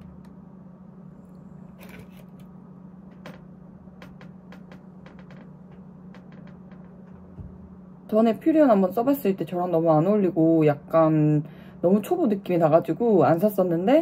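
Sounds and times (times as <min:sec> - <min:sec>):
low hum: 0:00.0 - 0:14.0
faint clicks and rustles: 0:01.7 - 0:07.6.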